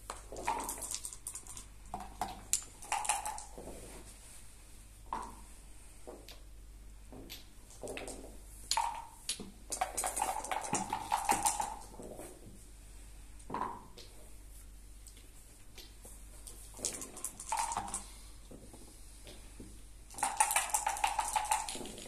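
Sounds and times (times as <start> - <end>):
dice rattling and clattering: 0.1 - 3.6, 7.7 - 12.0, 16.5 - 18.1, 20.1 - 22.0
checkers clicking on board: 20.1 - 22.0.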